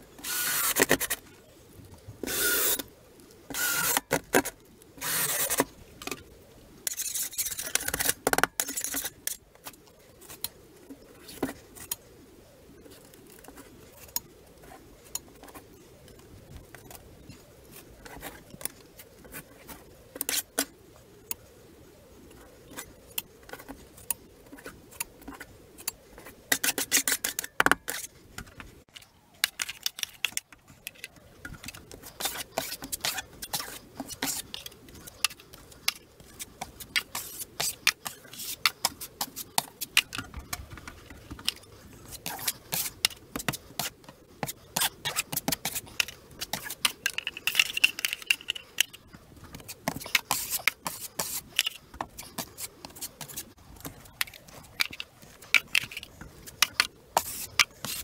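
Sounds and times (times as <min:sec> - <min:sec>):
drywall tape rustling: 0:00.0 - 0:06.2, 0:06.9 - 0:12.0, 0:26.2 - 0:58.0.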